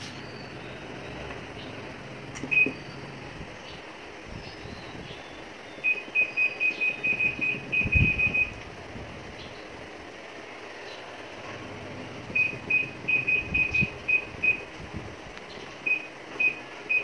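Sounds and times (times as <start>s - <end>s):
washing machine control panel beeps: 2.4s - 2.9s, 5.8s - 8.6s, 12.4s - 14.7s, 15.8s - 17.0s.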